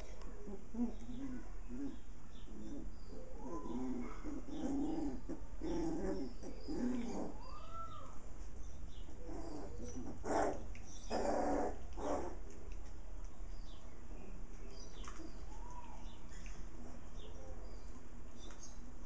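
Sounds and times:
puppies growling and whining: 0:00.0 - 0:08.2, 0:08.9 - 0:12.6, 0:16.6 - 0:17.4.

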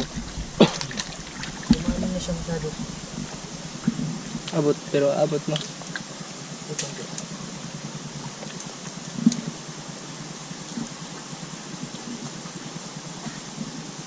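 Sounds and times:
low hum and hiss: 0:00.0 - 0:14.0.

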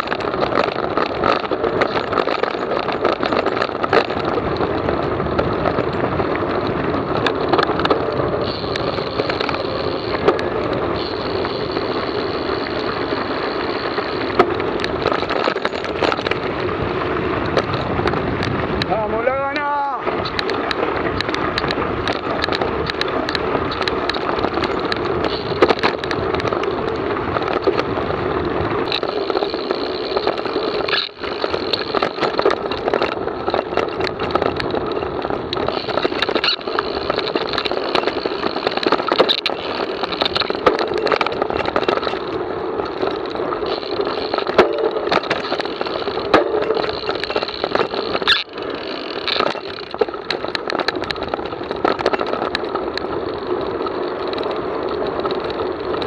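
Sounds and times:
bike rattling and knocking: 0:00.0 - 0:56.0
bike tyres rolling on gravel: 0:00.0 - 0:56.0.

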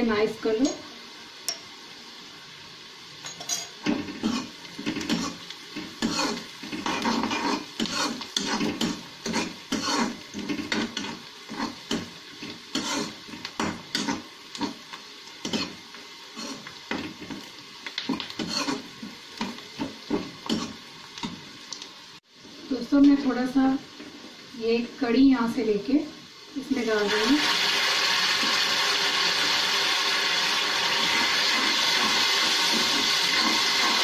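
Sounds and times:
hot oil sizzling: 0:00.0 - 0:34.0
metal spoon scraping a pan: 0:06.0 - 0:14.8, 0:18.2 - 0:20.8.

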